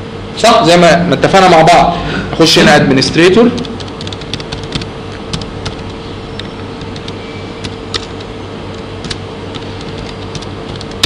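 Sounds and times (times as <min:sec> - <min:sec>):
keyboard keystrokes: 0:03.6 - 0:11.0.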